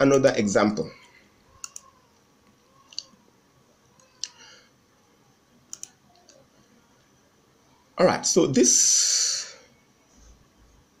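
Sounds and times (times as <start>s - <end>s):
computer mouse clicking: 1.5s - 3.2s, 5.7s - 6.4s.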